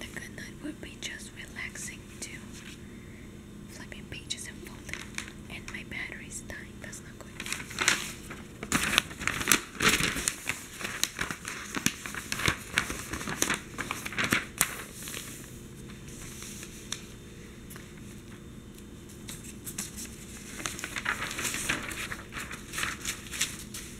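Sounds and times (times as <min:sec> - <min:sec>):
newspaper pages rustling: 0:04.8 - 0:05.4, 0:07.4 - 0:23.9.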